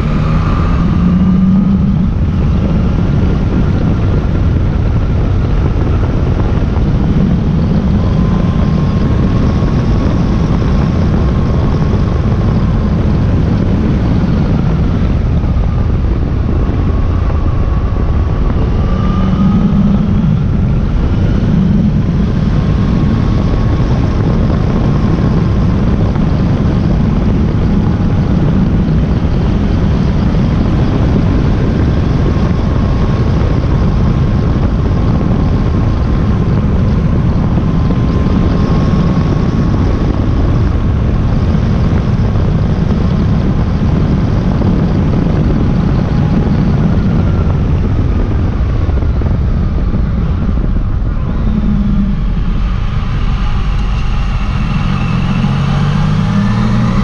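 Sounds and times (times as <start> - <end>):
motorcycle engine: 0.0 - 32.8, 46.0 - 57.0
wind and road rush: 0.0 - 57.0.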